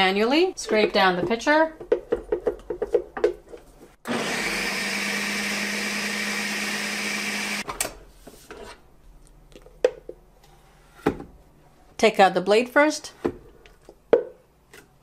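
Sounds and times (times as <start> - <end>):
blender motor running: 4.1 - 7.6.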